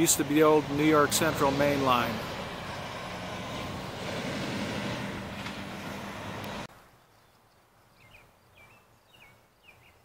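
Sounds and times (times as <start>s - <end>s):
vehicle engine hum: 0.0s - 6.7s
road noise: 0.0s - 7.1s
bird chirps: 7.0s - 10.0s.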